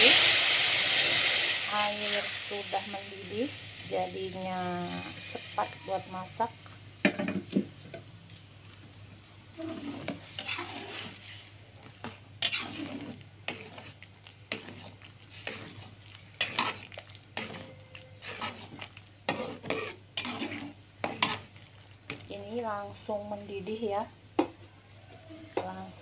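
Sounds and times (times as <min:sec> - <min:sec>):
metal ladle scraping a wok: 0:09.6 - 0:11.5, 0:12.4 - 0:21.5.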